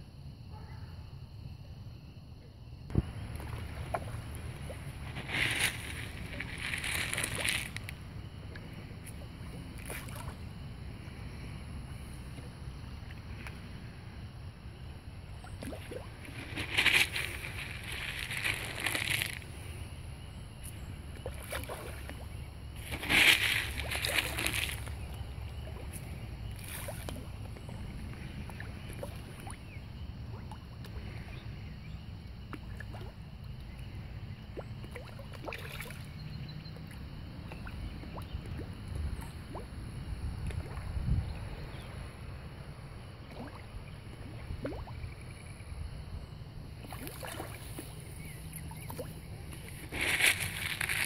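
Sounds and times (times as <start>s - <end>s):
water splashing in pond: 2.9s - 31.4s, 32.3s - 33.4s, 34.4s - 41.8s, 43.0s - 45.6s, 46.7s - 51.0s
wind rumble on microphone: 37.5s - 43.2s.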